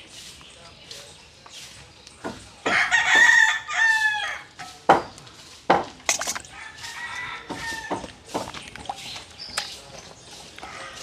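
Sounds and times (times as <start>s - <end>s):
rooster crowing: 2.7s - 4.5s, 6.5s - 8.0s
sharp knocks: 4.6s - 6.4s.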